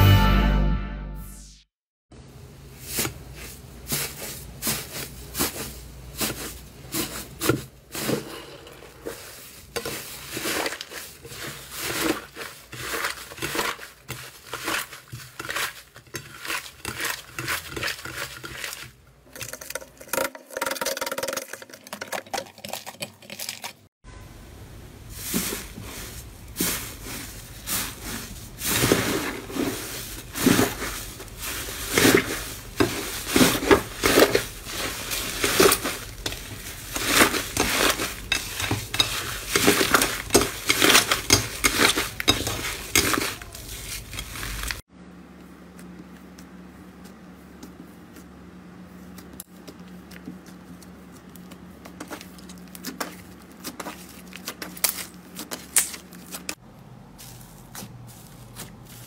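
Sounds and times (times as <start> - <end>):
slime squishing and crackling: 26.6 - 44.8, 49.1 - 56.6.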